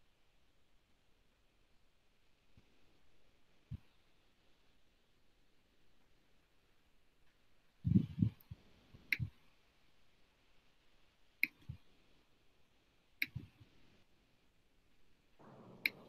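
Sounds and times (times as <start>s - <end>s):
sharp clicks: 11.4s - 11.8s, 13.2s - 13.6s, 15.4s - 16.0s.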